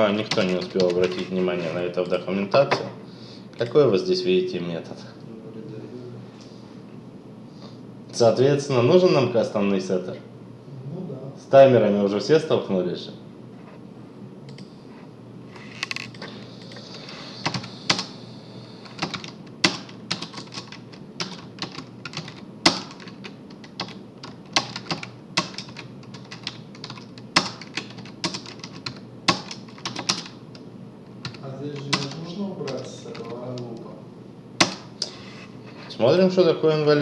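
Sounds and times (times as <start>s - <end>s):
computer keyboard typing: 0.1s - 2.2s, 15.8s - 18.1s, 18.8s - 30.6s, 31.2s - 33.7s, 34.6s - 34.9s.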